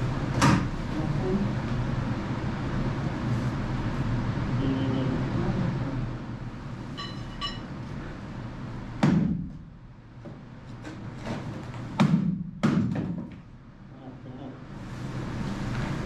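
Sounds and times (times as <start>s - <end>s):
hammer thuds on wood: 9.0s - 9.6s, 12.0s - 13.4s.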